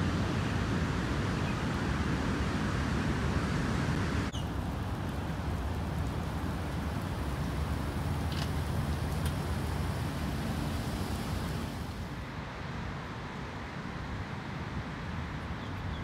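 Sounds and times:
wind rumble on microphone: 0.0s - 12.3s
river in flood: 0.0s - 15.9s.

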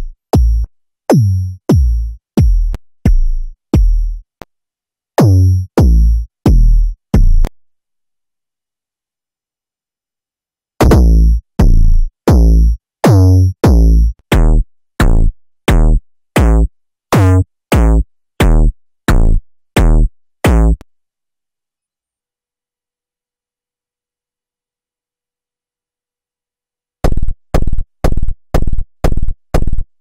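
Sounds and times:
distorted kick drums: 0.0s - 4.2s, 5.2s - 7.5s, 10.8s - 20.8s, 27.0s - 29.9s.

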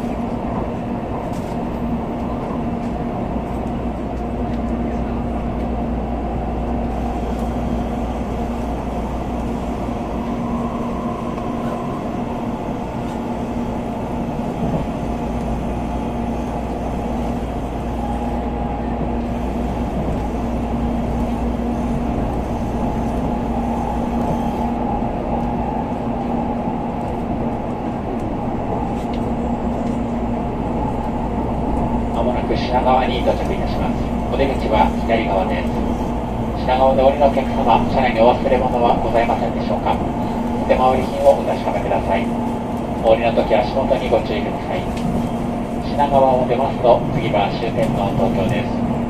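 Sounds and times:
constant hums: 0.0s - 49.0s
train cabin rumble: 0.0s - 49.0s.

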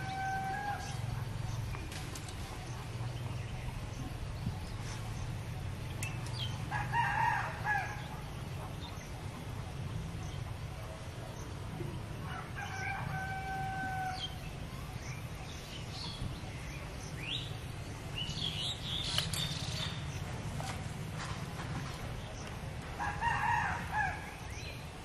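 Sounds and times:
rooster crowing: 0.0s - 1.0s, 12.3s - 14.3s, 23.0s - 24.2s
small birds chirping: 0.0s - 7.1s, 7.7s - 23.0s.

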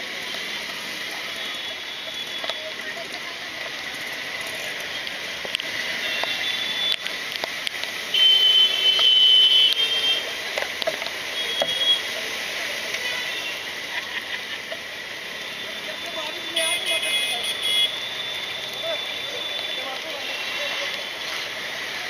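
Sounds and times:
rain: 0.0s - 22.0s
traffic engine noise: 0.0s - 22.0s
vehicle horns honking: 8.1s - 10.3s, 16.5s - 18.1s.

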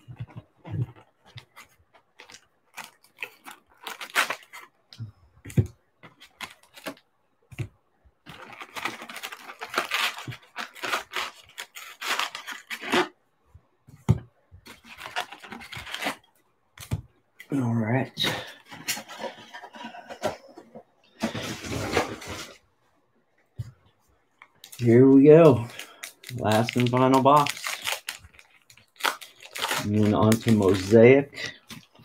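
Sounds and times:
card pack wrappers crackling: 2.2s - 4.7s, 8.3s - 13.1s, 24.6s - 31.7s
wrapper tearing and rustling: 2.2s - 4.7s, 8.3s - 13.2s, 14.7s - 16.3s, 24.6s - 31.2s.

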